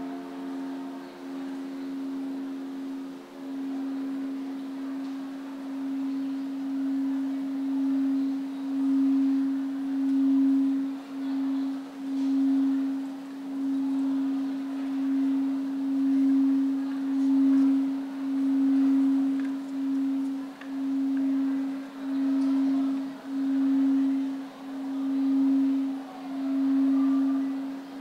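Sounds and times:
crystal singing bowl tone: 0.0s - 28.0s.

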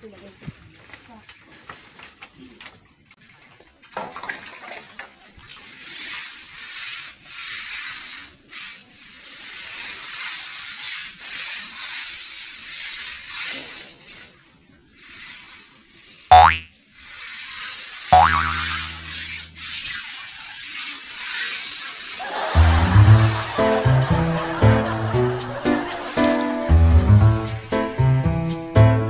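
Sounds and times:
hand scrubbing cloth: 15.0s - 26.5s.

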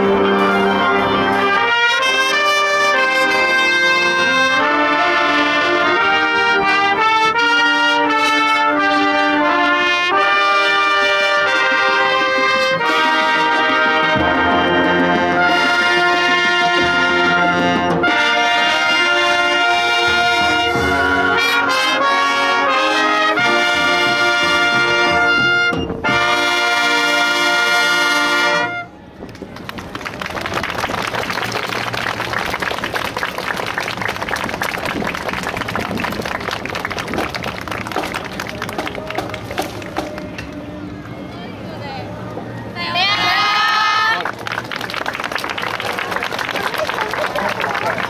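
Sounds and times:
wind band playing: 0.0s - 48.0s.

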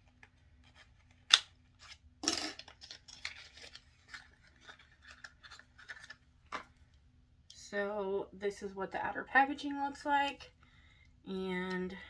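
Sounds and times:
packaging tearing crinkle: 0.2s - 6.2s.

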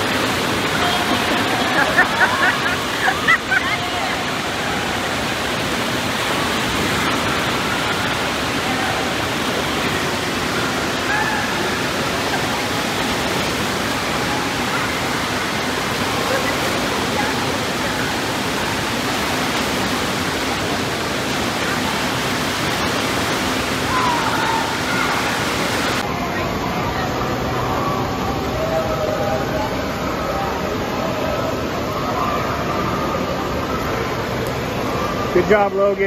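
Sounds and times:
churning water in wave pool: 0.0s - 36.0s
faint children's voices: 6.3s - 19.0s, 23.8s - 35.4s.

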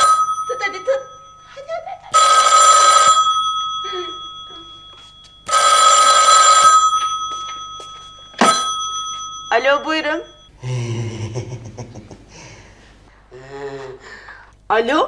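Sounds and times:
telephone bell ringing: 0.0s - 10.5s.

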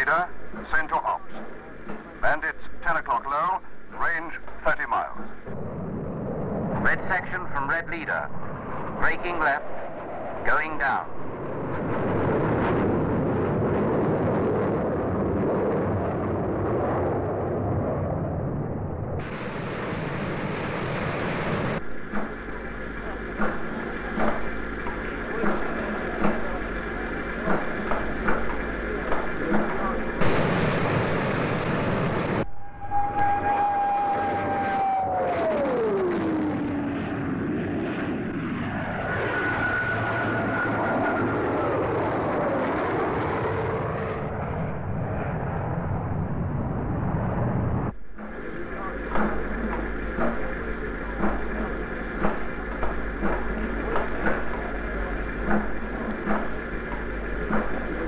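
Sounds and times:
jet engines rushing: 0.0s - 58.0s
thin high-pitched whine: 19.2s - 35.2s.

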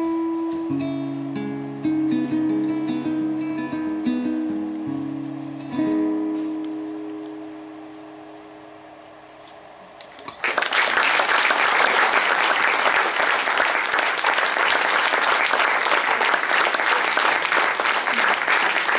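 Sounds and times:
audience applause: 10.3s - 18.9s.

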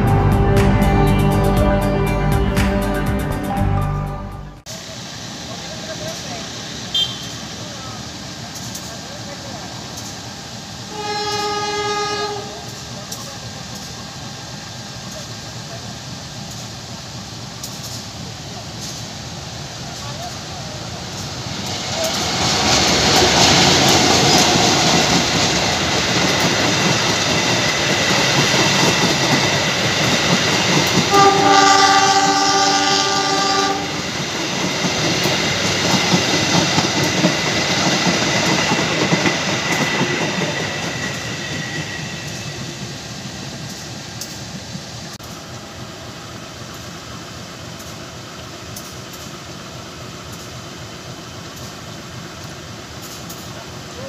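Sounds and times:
train horn blast: 0.0s - 4.6s, 6.9s - 7.4s, 10.9s - 12.7s, 31.1s - 34.1s
train coaches rumbling: 0.0s - 54.0s
train engine and wheel noise: 0.0s - 54.0s.

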